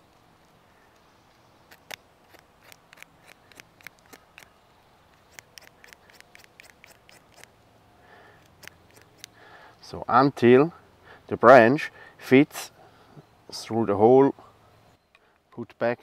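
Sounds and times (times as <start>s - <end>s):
knife shaving wood: 1.7s - 4.5s, 5.2s - 7.5s.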